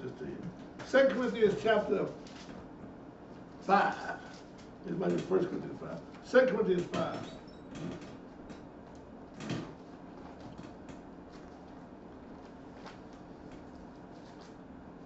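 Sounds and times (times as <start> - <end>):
low room hum: 0.0 - 15.0
pages turning: 11.3 - 14.6.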